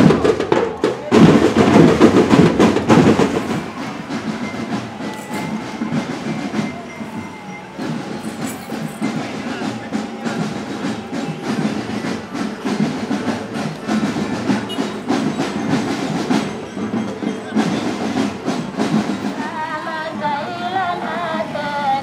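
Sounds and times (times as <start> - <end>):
clattering street din: 0.0 - 22.0
parade drums beating: 0.0 - 22.0
wavering melody from loudspeaker: 3.6 - 13.2.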